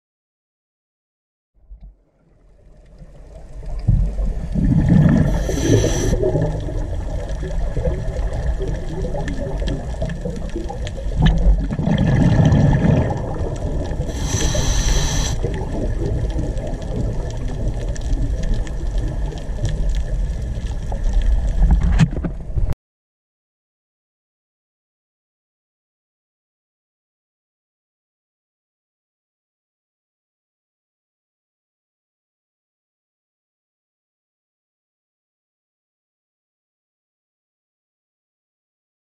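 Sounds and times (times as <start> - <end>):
underwater rumble of water and bubbles: 1.6 - 22.8
gurgling exhaled bubbles: 2.5 - 22.6
diver breathing through regulator: 4.7 - 6.4, 14.0 - 15.6.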